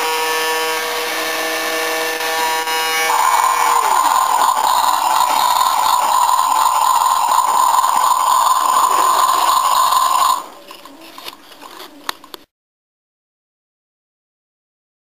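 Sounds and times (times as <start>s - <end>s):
toy truck electronic engine sound: 0.0s - 12.4s.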